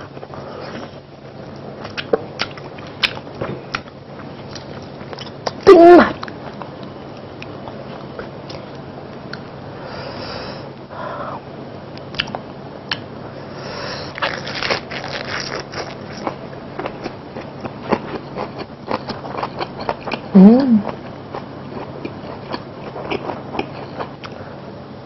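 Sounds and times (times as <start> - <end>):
crisp crunching and chewing: 14.1 - 20.3
lettuce leaves rustling: 14.2 - 16.2.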